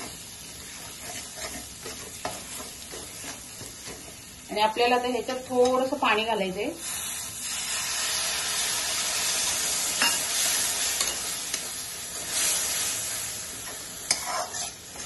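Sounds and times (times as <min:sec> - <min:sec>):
spatula scraping and knocking pan: 0:00.0 - 0:04.3, 0:13.7 - 0:15.0
food sizzling in a pan: 0:00.0 - 0:15.0.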